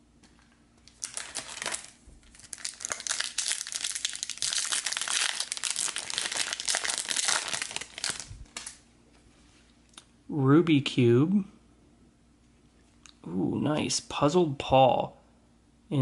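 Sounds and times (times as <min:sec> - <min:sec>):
foil wrapper tearing and crinkling: 0:00.9 - 0:08.8.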